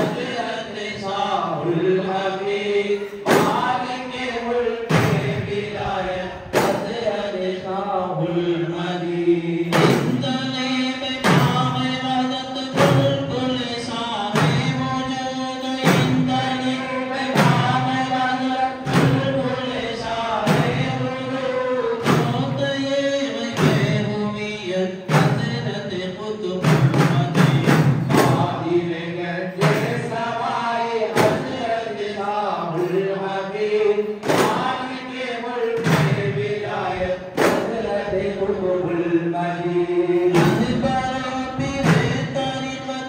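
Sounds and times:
men chanting in unison: 0.0s - 43.0s
frame drums: 3.2s - 3.8s, 4.9s - 5.8s, 6.5s - 7.1s, 9.7s - 29.0s, 29.6s - 31.9s, 32.7s - 34.9s, 35.7s - 36.7s, 37.3s - 38.6s, 40.2s - 43.0s.

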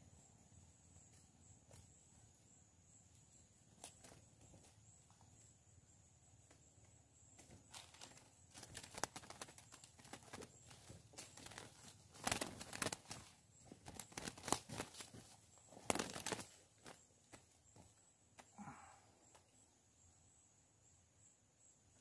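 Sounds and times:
bird flapping wings in cage: 7.4s - 17.5s.

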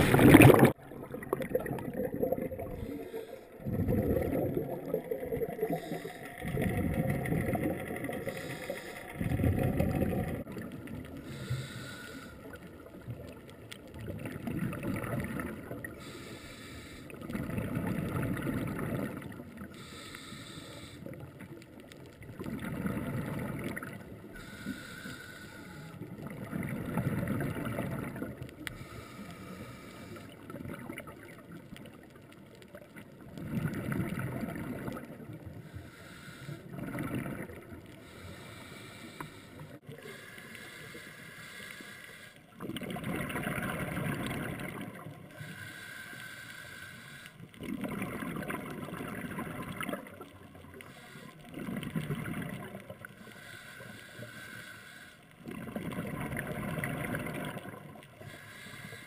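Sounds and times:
exhaled bubbles rushing underwater: 0.0s - 11.8s, 12.4s - 16.2s, 17.1s - 20.0s, 21.0s - 24.6s, 25.8s - 29.1s, 30.2s - 35.7s, 36.6s - 38.6s, 42.5s - 45.5s, 47.4s - 53.2s, 55.4s - 58.4s
regulator hiss: 11.3s - 12.4s, 19.8s - 21.1s, 24.4s - 25.9s.

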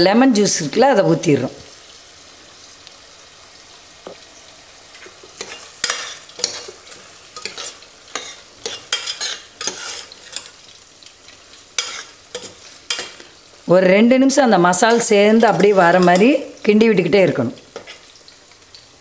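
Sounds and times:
low sizzle: 0.0s - 19.0s
metal spoon scraping pot: 5.4s - 10.6s, 11.8s - 13.2s.

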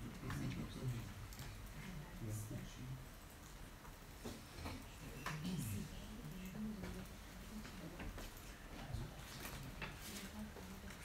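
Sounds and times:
faint clicks and knocks: 3.1s - 11.0s.

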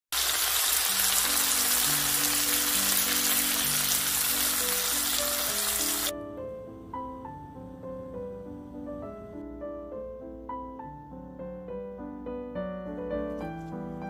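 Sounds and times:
fish sizzling in a frying pan: 0.1s - 6.1s
piano music: 0.3s - 14.0s.

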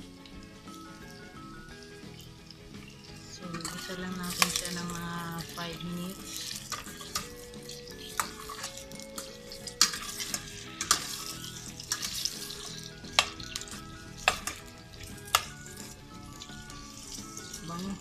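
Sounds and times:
vegetables sizzling in oil: 0.0s - 18.0s
spoon clinking against pot: 2.9s - 4.9s, 6.3s - 17.8s.

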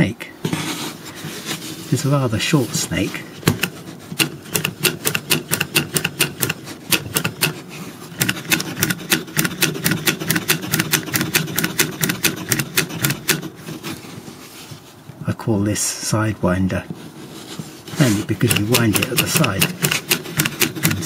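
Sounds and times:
wooden automaton clicking and rattling: 3.5s - 7.6s, 8.2s - 13.6s, 18.4s - 21.0s.

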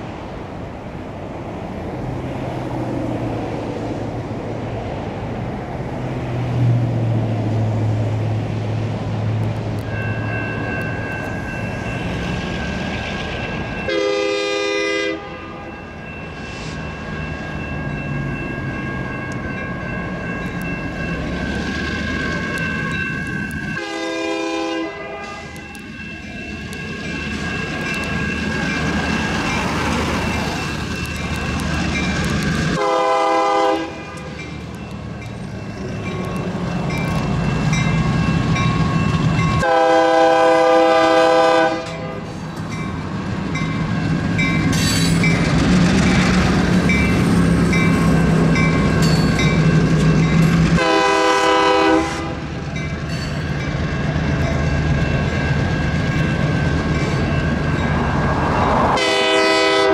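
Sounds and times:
crossing warning bells ringing: 9.1s - 59.9s
train horn blasts: 13.9s - 15.7s, 23.7s - 25.7s, 32.7s - 34.4s, 39.6s - 42.3s, 50.8s - 52.5s, 59.0s - 59.9s.

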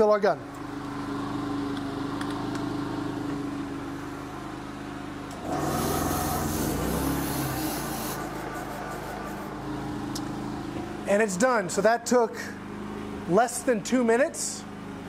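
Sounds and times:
generator hum: 0.0s - 15.0s
compressor chugging: 5.2s - 13.8s
air hissing: 5.4s - 9.8s.

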